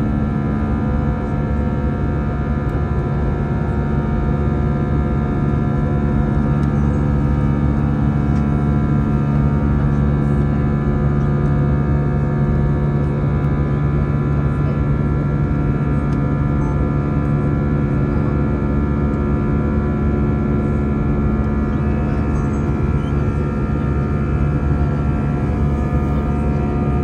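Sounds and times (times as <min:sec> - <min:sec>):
jet engines running: 0:02.4 - 0:17.7, 0:18.7 - 0:27.0
steady whining tones: 0:20.8 - 0:27.0.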